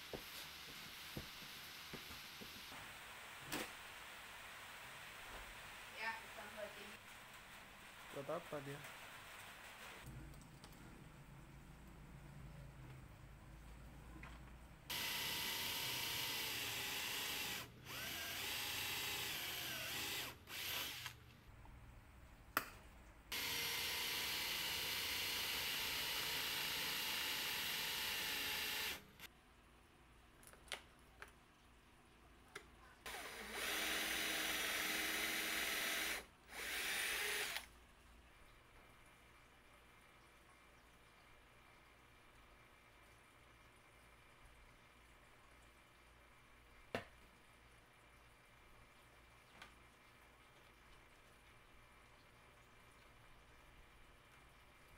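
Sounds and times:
electric drill running: 14.9s - 21.2s, 23.3s - 29.3s, 33.0s - 37.7s.

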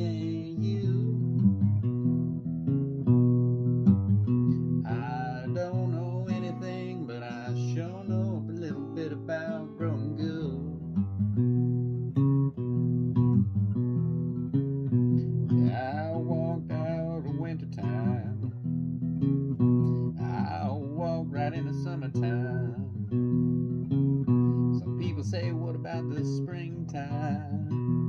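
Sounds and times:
person singing: 0.0s - 1.3s, 4.9s - 10.9s, 15.5s - 18.5s, 19.8s - 23.0s, 24.4s - 27.8s
fingerpicked acoustic guitar: 0.0s - 28.0s.

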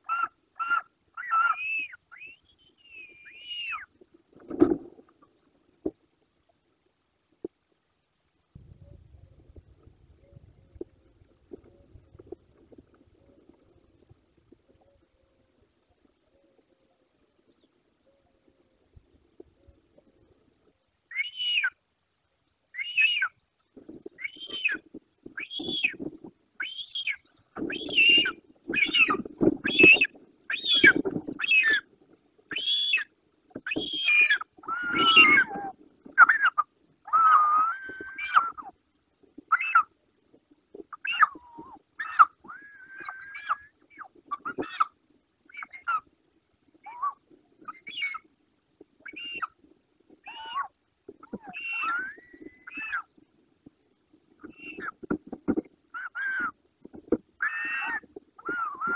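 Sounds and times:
eagle whistled calls: 0.1s - 3.9s, 24.2s - 24.8s, 25.4s - 26.0s, 26.6s - 31.8s, 32.5s - 33.1s, 33.7s - 38.6s, 41.0s - 44.9s, 45.5s - 46.0s, 46.8s - 48.2s, 49.0s - 49.5s, 51.4s - 53.1s, 54.4s - 54.9s.

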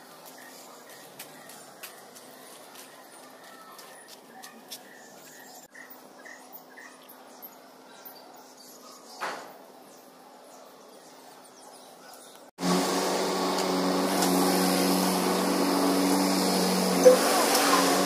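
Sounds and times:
steady machine hum: 12.6s - 18.0s.

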